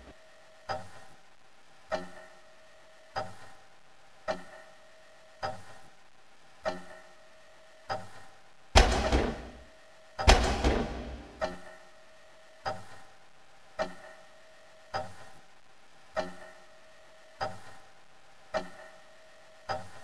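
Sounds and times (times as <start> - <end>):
clock ticking with ringing tone: 0.0 - 1.1, 1.9 - 3.6, 4.2 - 5.9, 6.6 - 15.4, 16.1 - 20.0
heavy impacts with rumbling decay: 8.8 - 9.6, 10.3 - 11.4.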